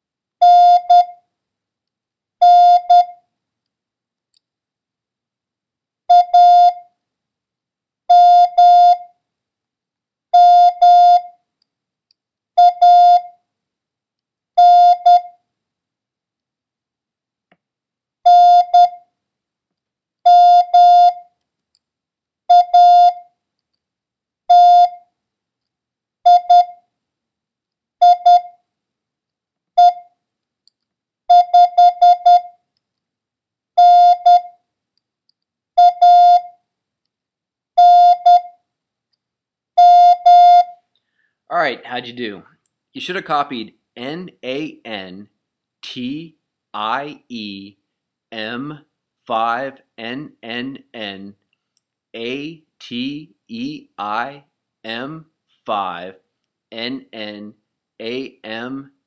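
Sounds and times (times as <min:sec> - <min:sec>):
morse code beeps: 0:00.4 - 0:01.2, 0:02.4 - 0:03.2, 0:06.1 - 0:06.8, 0:08.1 - 0:09.0, 0:10.4 - 0:11.3, 0:12.6 - 0:13.3, 0:14.6 - 0:15.3, 0:18.3 - 0:19.0, 0:20.3 - 0:21.2, 0:22.5 - 0:23.2, 0:24.5 - 0:25.0, 0:26.3 - 0:26.8, 0:28.0 - 0:28.6, 0:29.8 - 0:30.1, 0:31.3 - 0:32.5, 0:33.8 - 0:34.5, 0:35.8 - 0:36.5, 0:37.8 - 0:38.6, 0:39.8 - 0:40.8.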